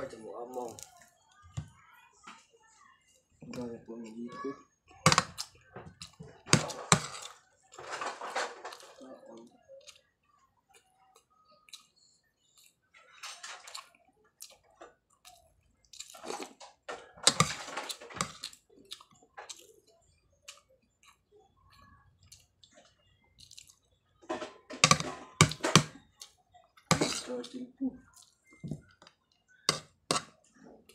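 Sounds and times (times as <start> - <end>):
person chewing and slurping: 13.6 - 16.6, 24.8 - 27.4.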